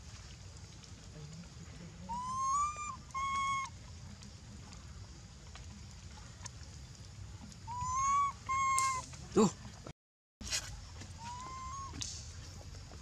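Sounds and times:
young monkey crying: 2.1 - 3.8, 7.7 - 9.1, 11.2 - 12.0.

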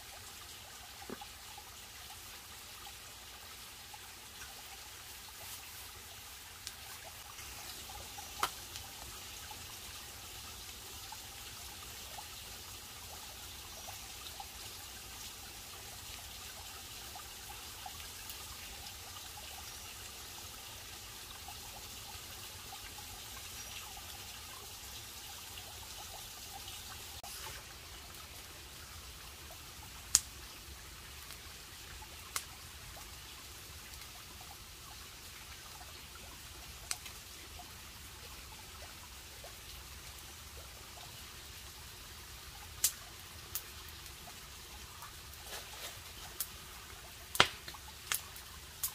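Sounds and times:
water trickling: 0.0 - 48.9
wood fire cracking: 8.4 - 8.9, 47.2 - 48.9.

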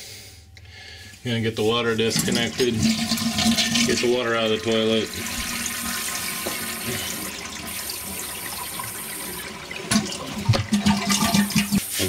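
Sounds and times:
toilet flushing: 1.6 - 11.8
knocks in pipes: 9.9 - 11.8.

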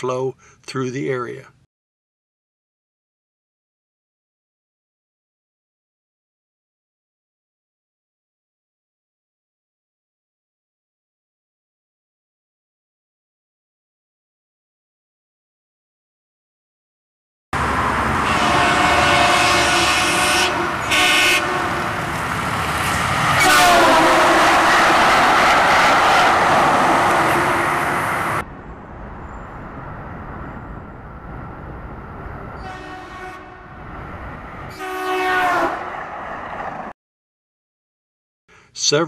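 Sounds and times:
train on rails: 17.6 - 37.0
train horn blasts: 18.2 - 22.1, 23.4 - 27.8, 32.6 - 33.8, 34.7 - 35.9.

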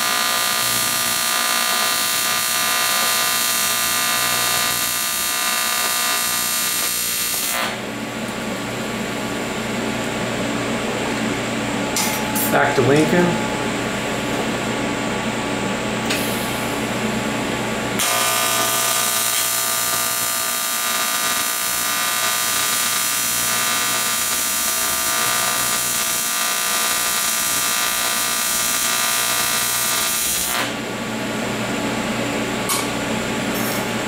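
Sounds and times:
welding arc buzzing: 0.0 - 9.1, 17.8 - 30.9
steady hum: 0.0 - 20.2.

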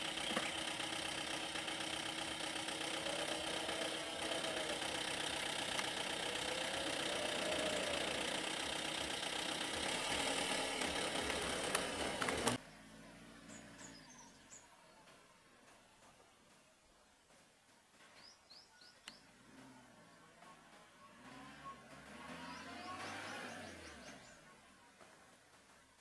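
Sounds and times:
vehicle engine idling: 0.0 - 15.0, 19.1 - 25.4
bird chirps: 13.4 - 15.1.

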